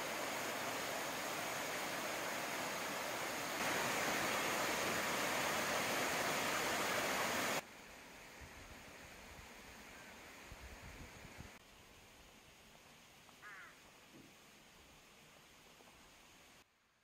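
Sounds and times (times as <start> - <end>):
waterfall rushing: 0.0 - 7.6.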